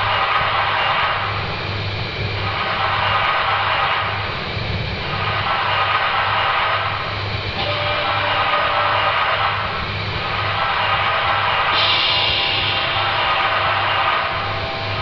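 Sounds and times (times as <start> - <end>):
hissing rumbling drone: 0.0 - 15.0.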